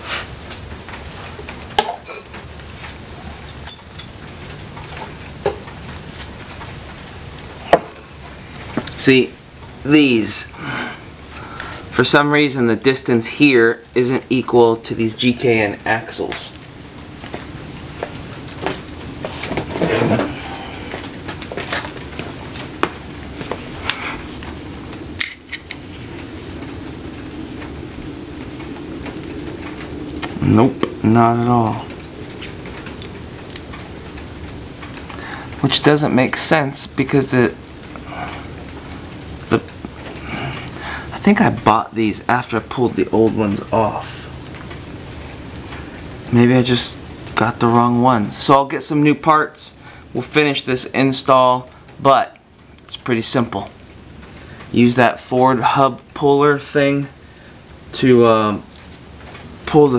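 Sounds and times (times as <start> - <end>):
low steady hum: 0.0 - 59.9
metal clinks of wrench and bolts: 3.6 - 4.2.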